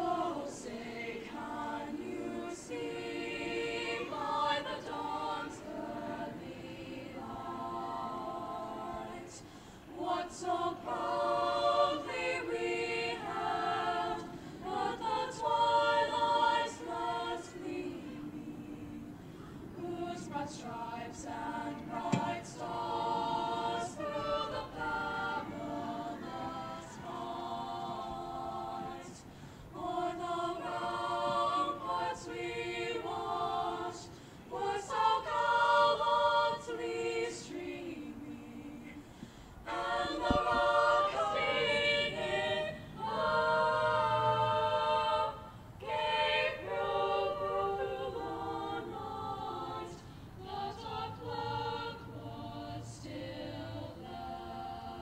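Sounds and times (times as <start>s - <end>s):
choir singing a cappella: 0.0s - 55.0s
singers breathing: 9.4s - 9.9s, 14.2s - 14.7s, 19.1s - 19.8s, 29.2s - 29.8s, 34.0s - 34.5s, 38.8s - 39.7s, 45.4s - 45.8s, 50.0s - 50.4s.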